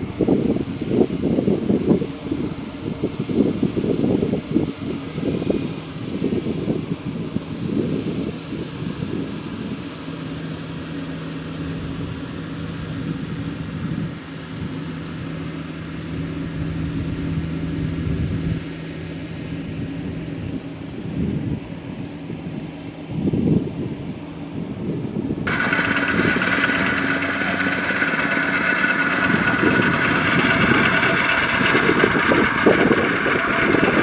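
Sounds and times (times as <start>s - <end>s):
diesel tractor engine running: 25.5s - 34.0s.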